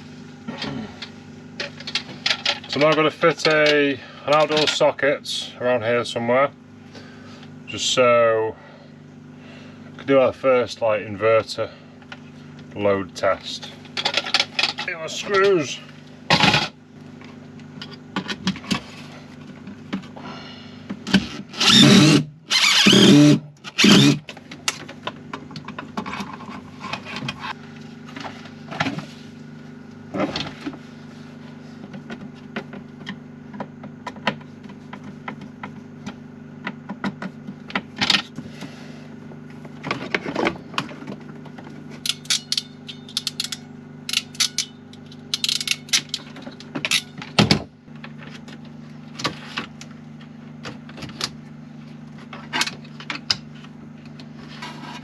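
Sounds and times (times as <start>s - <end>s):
generator humming: 0.0s - 55.0s
clinks and rattles of metal parts: 42.0s - 47.4s.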